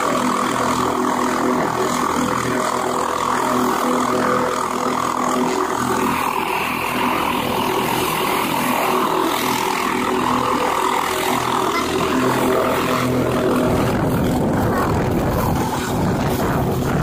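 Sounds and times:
helicopter engine and rotor hum: 0.0s - 17.0s
deep rumble of rotor wash: 12.3s - 17.0s.

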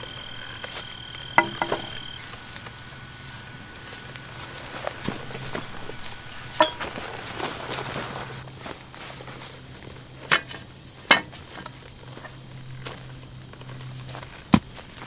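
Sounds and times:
faint outdoor background: 0.0s - 15.0s
pickaxe and shovel knocks: 1.4s - 2.0s.

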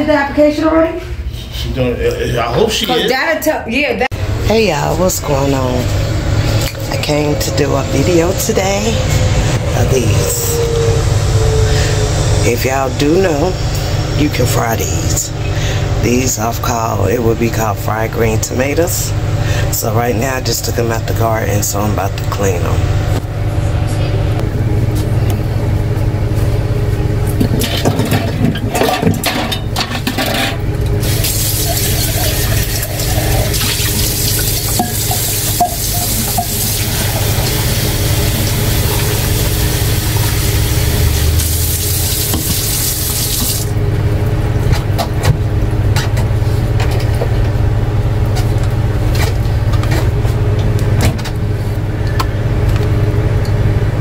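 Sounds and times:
low hum: 4.0s - 54.0s
tap water running: 31.0s - 43.8s.

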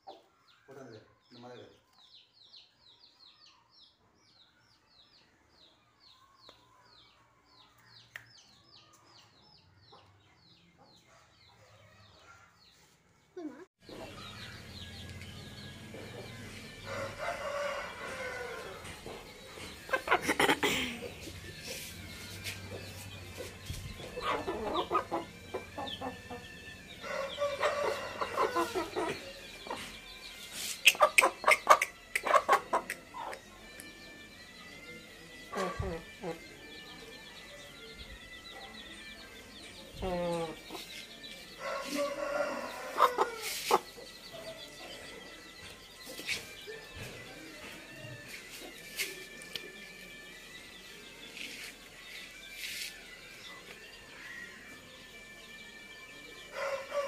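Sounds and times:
chicks peeping: 0.0s - 34.0s, 37.4s - 49.9s
chicken clucking: 19.1s - 21.9s, 23.4s - 26.4s, 30.8s - 33.4s.

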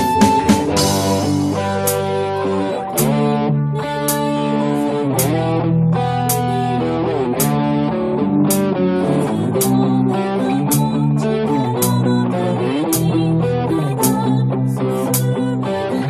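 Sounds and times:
crisp percussion hits: 0.0s - 3.2s
bass line: 0.0s - 16.0s
guitar: 0.0s - 16.0s.

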